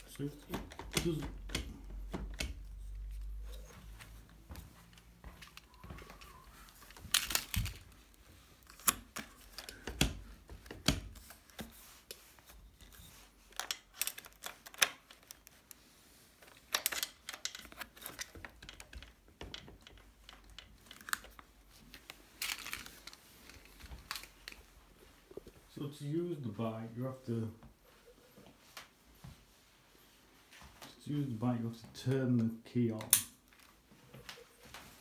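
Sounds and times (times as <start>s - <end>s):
plastic clicks and rustles: 0.0s - 25.6s.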